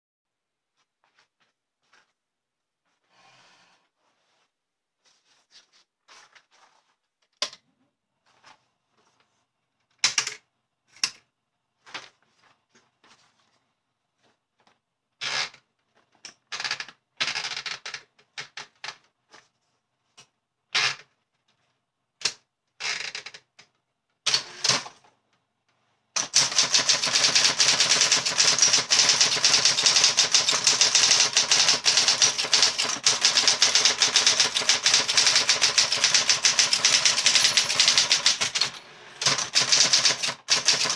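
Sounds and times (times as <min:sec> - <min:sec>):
fast typewriter typing: 0:24.3 - 0:24.9, 0:26.2 - 0:40.9
typewriter clicks and clunks: 0:26.2 - 0:40.9
typewriter motor humming: 0:26.2 - 0:40.9.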